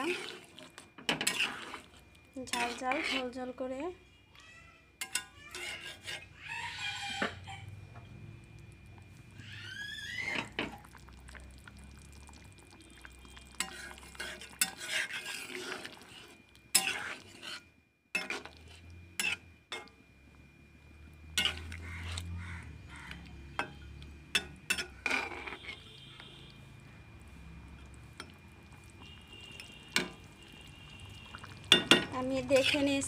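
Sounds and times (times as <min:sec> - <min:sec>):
spatula scraping metal pan: 0:00.0 - 0:03.6, 0:05.0 - 0:06.4, 0:13.6 - 0:19.9, 0:21.3 - 0:22.4, 0:23.1 - 0:26.0, 0:31.7 - 0:33.0
faint simmer: 0:00.0 - 0:33.0
spatula clinking against pan: 0:05.0 - 0:06.0, 0:31.7 - 0:32.8.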